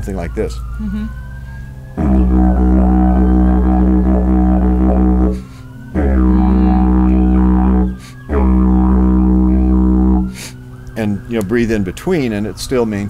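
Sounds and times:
didgeridoo drone: 0:01.9 - 0:11.5
player breathing: 0:05.4 - 0:05.8, 0:08.0 - 0:08.3, 0:10.3 - 0:10.7.

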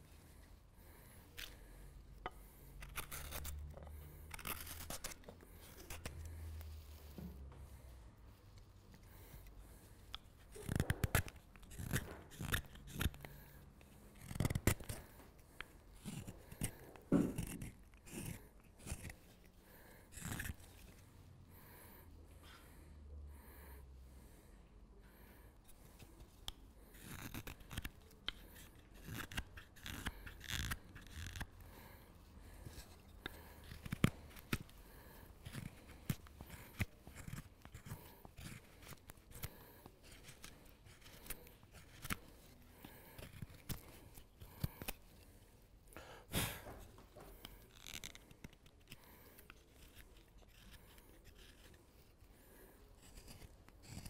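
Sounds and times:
knife cutting wood: 0:02.2 - 0:06.3, 0:10.1 - 0:13.5, 0:14.2 - 0:19.5, 0:20.1 - 0:21.0, 0:26.1 - 0:45.0, 0:53.0 - 0:54.0.

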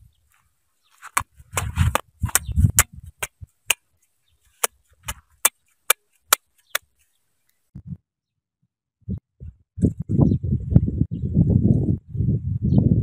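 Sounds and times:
machete chopping on ground: 0:01.0 - 0:03.9, 0:04.5 - 0:07.0.

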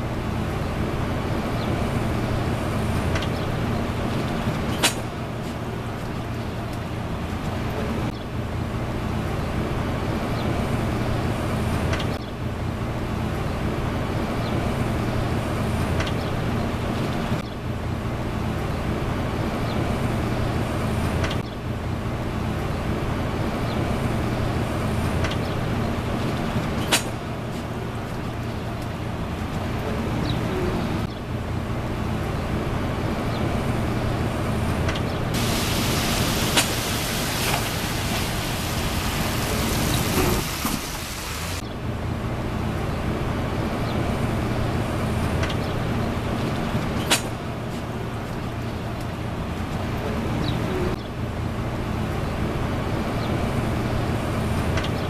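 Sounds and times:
low rumble of traffic: 0:00.0 - 0:55.0
tyres hissing on wet pavement: 0:35.4 - 0:41.6.

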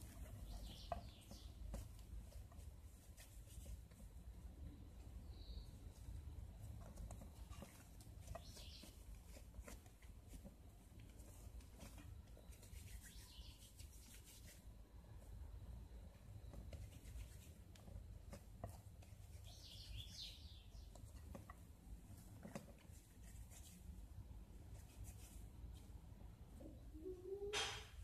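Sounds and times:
faint high chirping: 0:00.0 - 0:01.7, 0:04.9 - 0:09.4, 0:11.8 - 0:14.6, 0:19.1 - 0:21.2
hands tapping and rubbing dough: 0:00.0 - 0:14.7, 0:16.1 - 0:26.0.

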